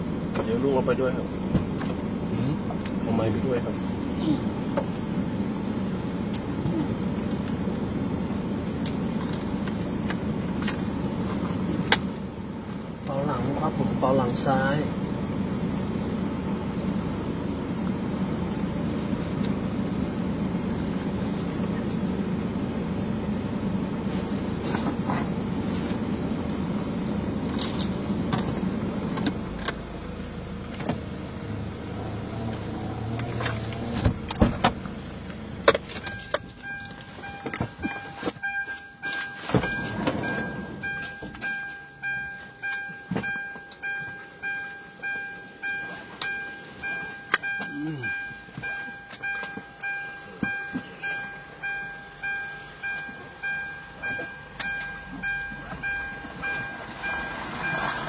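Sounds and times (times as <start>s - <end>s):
car engine and road rumble: 0.0s - 58.0s
repeating chime: 36.0s - 58.0s.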